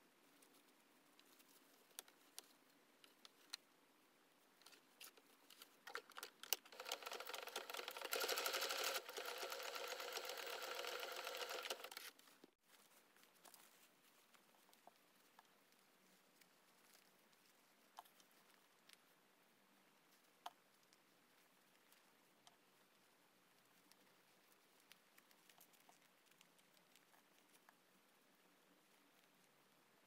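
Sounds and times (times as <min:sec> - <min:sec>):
sewing machine stitching: 0:06.5 - 0:12.1.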